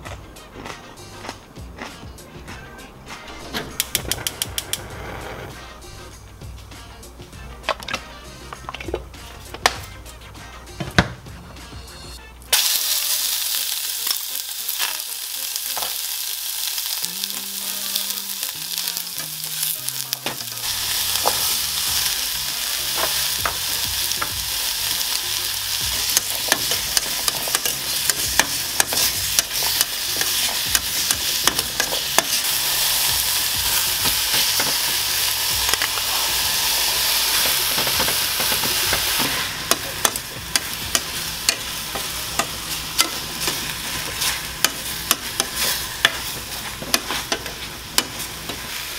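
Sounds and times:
meat sizzling in pot: 12.5s - 48.9s
tongs clicking against pot: 26.0s - 32.4s, 37.4s - 43.6s, 44.2s - 48.6s.

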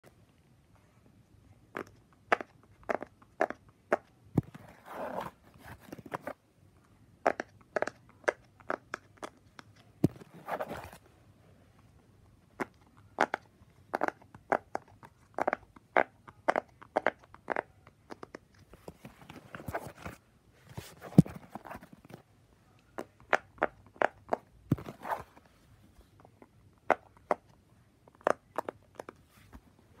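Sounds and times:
rustling: 10.0s - 11.1s.

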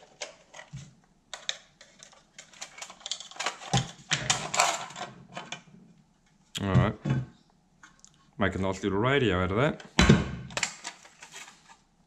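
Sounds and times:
metal clicks scrapes and rattles: 1.4s - 5.6s.

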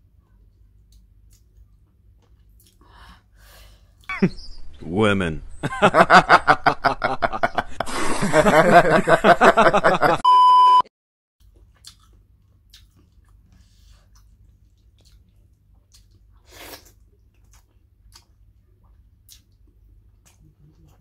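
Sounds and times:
eating by hand mouth sounds: 0.5s - 2.8s, 11.4s - 21.0s
laughter: 4.1s - 4.4s, 5.6s - 10.2s
steady high beep: 10.2s - 10.9s.

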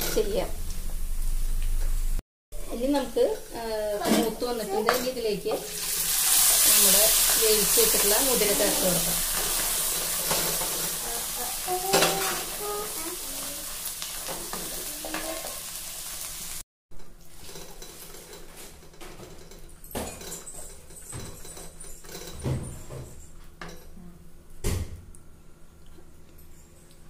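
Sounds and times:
food sizzling in hot oil: 3.2s - 16.6s.

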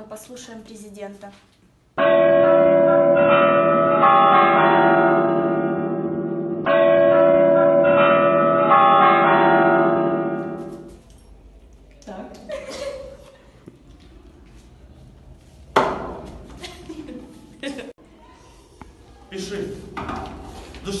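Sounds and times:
clock-tower bells chiming: 2.0s - 10.9s.

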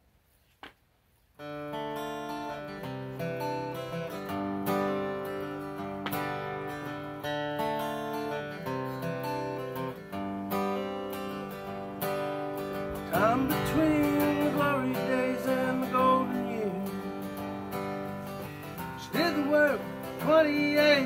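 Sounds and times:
acoustic guitar strumming: 1.4s - 21.0s.

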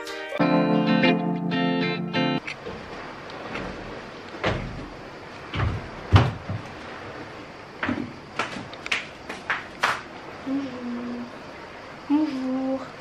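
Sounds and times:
music cue: 0.0s - 2.4s
faint room noise: 0.0s - 13.0s
knocks and thumps: 3.5s - 6.8s.

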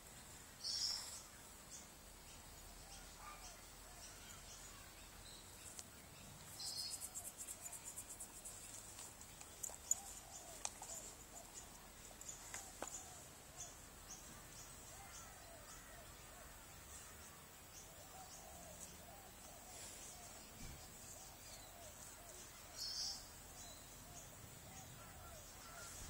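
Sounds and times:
faint high chirps: 0.6s - 8.8s.

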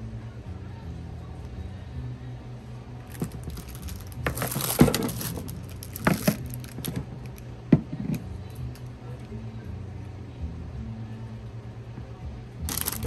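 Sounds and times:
rustling of goods: 3.1s - 7.4s, 12.7s - 13.0s.

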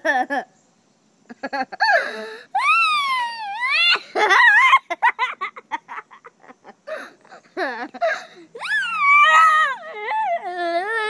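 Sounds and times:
boy giggling: 0.0s - 0.5s, 1.3s - 2.2s, 3.6s - 8.6s
young boy squealing: 1.9s - 5.1s, 8.0s - 11.0s.

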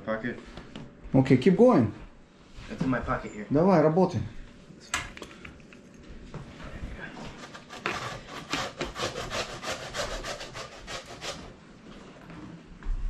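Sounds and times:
potatoes grated on a grater: 7.4s - 11.4s.

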